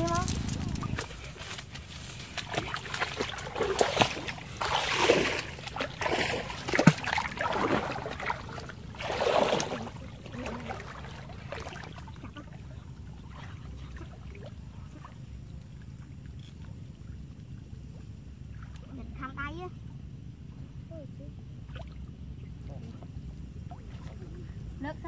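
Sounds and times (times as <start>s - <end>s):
water splashing around wading legs: 0.0s - 15.2s.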